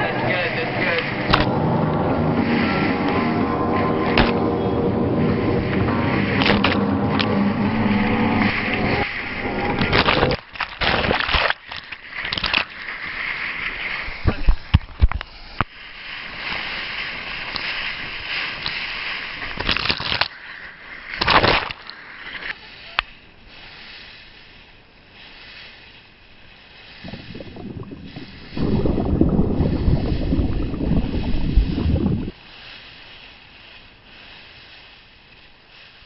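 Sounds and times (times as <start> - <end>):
wind on microphone: 0.0 - 11.2, 26.8 - 32.4
water sloshing and rushing: 0.0 - 36.0.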